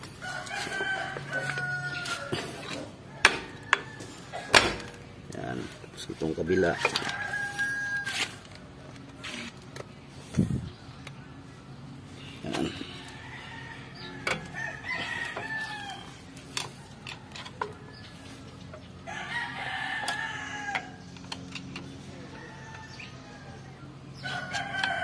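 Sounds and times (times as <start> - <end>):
rooster crowing: 0.1 - 4.6, 6.6 - 8.4, 12.8 - 16.2, 19.0 - 21.1, 22.1 - 25.0.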